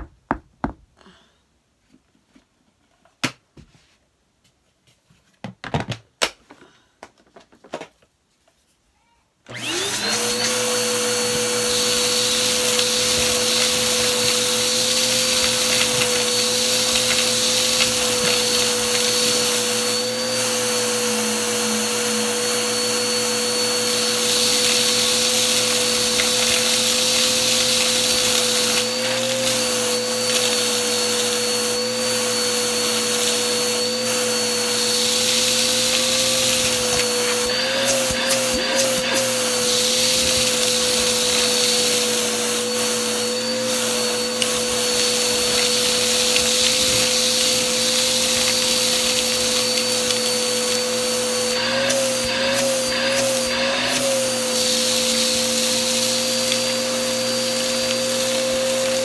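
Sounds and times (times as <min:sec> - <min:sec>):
vacuum cleaner motor whine: 0:09.5 - 0:59.0
hose sucking up dirt and grit: 0:09.6 - 0:59.0.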